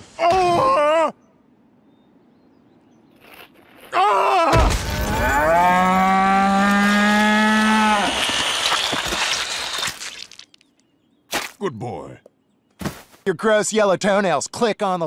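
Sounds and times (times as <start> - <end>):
scraping rush sliding down dirt: 5.7 - 10.6.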